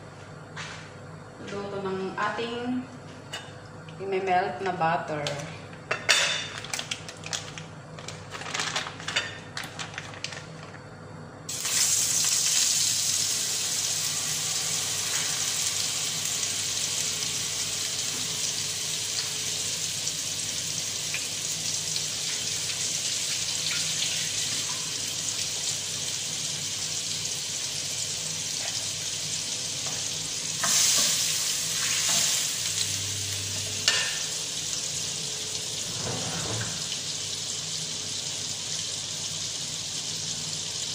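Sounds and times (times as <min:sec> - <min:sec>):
butter sizzling in hot oil: 0:11.5 - 0:40.9.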